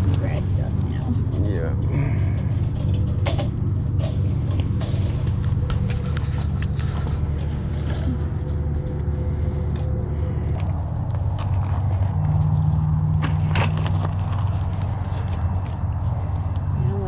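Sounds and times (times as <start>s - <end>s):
low mechanical hum: 0.0s - 17.0s
wire cage clinking: 0.9s - 6.2s.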